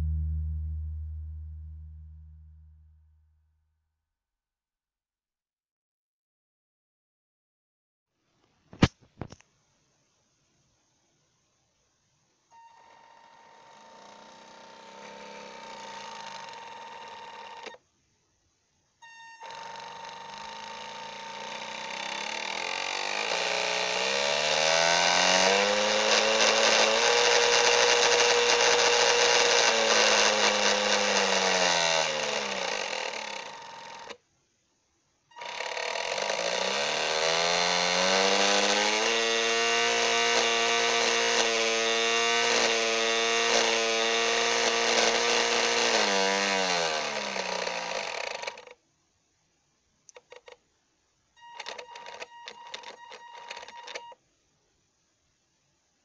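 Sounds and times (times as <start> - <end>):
electric boat motor whining: 12.8 - 17.8, 19.4 - 34.2, 35.4 - 48.7.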